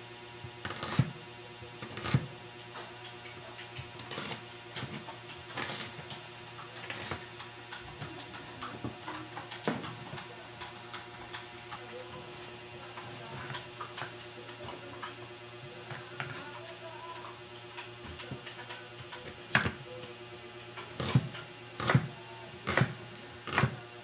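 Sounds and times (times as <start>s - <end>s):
knife chopping on cutting board: 0.6s - 1.2s, 21.0s - 23.8s.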